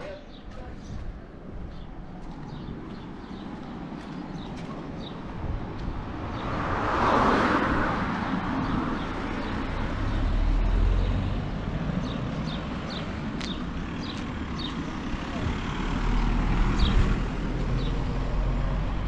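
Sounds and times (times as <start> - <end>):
car passing by: 6.3 - 19.0.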